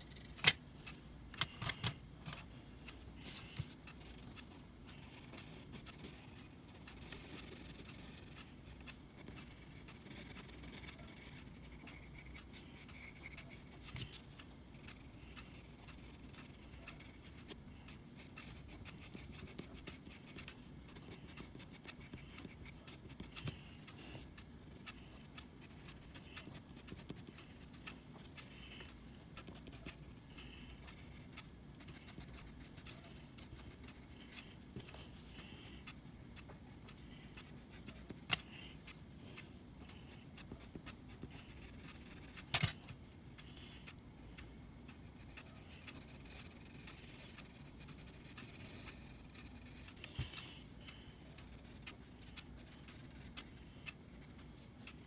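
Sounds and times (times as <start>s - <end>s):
pencil scratching on paper: 3.4s - 35.6s, 45.0s - 53.6s.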